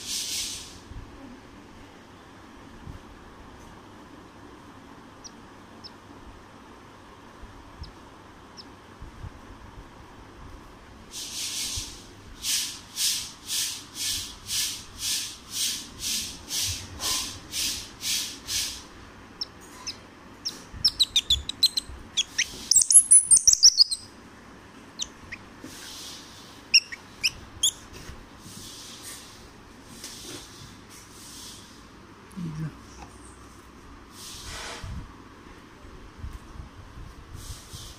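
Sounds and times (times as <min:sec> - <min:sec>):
squirrel chirping: 0:05.2 - 0:06.0, 0:19.4 - 0:24.1, 0:24.9 - 0:26.0, 0:26.7 - 0:27.9
squirrel squeaking: 0:19.4 - 0:24.1, 0:25.0 - 0:26.0, 0:26.7 - 0:27.9.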